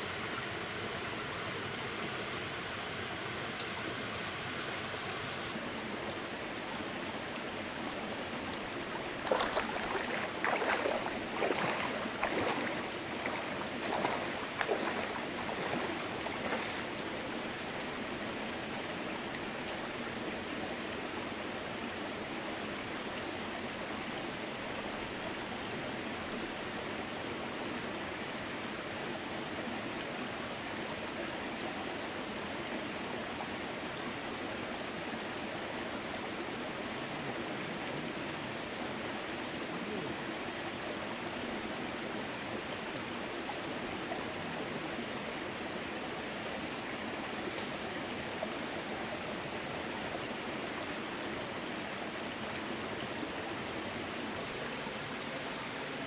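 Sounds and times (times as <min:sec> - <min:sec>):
stream running: 0:00.0 - 0:56.0.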